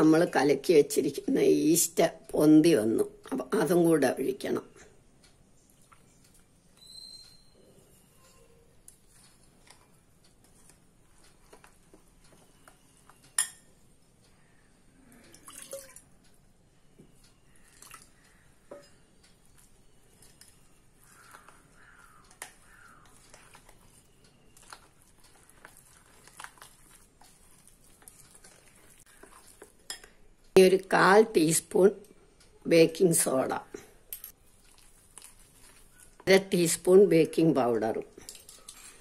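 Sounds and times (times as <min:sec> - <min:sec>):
spoon stirring batter: 0:00.0 - 0:39.0.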